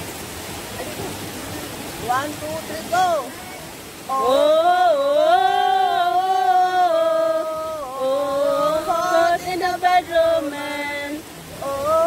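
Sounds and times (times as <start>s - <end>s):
woman singing unaccompanied: 4.0s - 12.0s.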